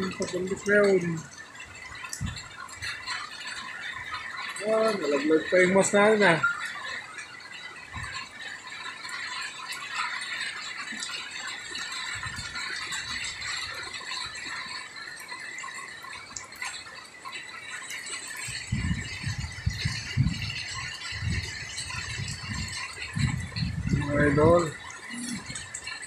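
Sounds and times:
heavy rain hissing: 0.0s - 26.0s
wind buffeting microphone: 0.0s - 26.0s.

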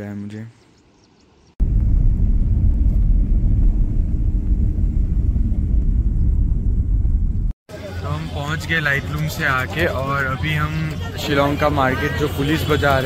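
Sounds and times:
loud dense low rumble: 1.6s - 7.6s.

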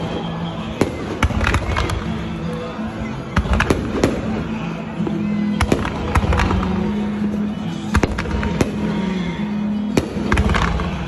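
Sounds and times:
fireworks bangs: 0.0s - 2.3s, 3.3s - 4.7s, 5.5s - 7.0s, 7.9s - 9.2s, 9.9s - 11.0s
background music: 0.0s - 11.0s.

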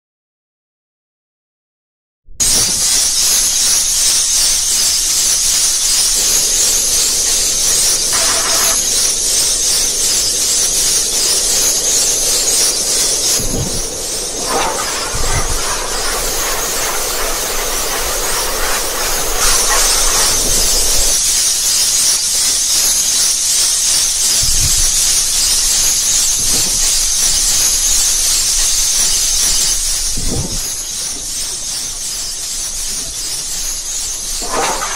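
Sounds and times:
mid-pitched noise: 2.4s - 21.4s
loud high-pitched hiss: 2.4s - 34.9s.

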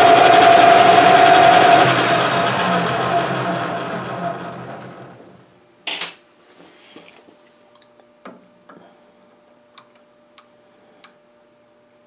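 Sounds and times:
faint steady hum: 5.2s - 12.0s.

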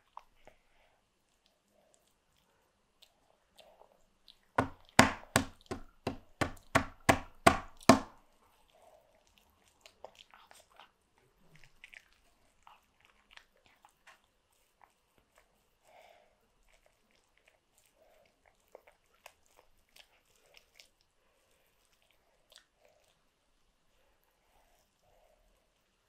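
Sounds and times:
faint chewing: 0.0s - 5.0s, 7.8s - 26.0s
hand slapping a tabletop: 4.6s - 8.1s.

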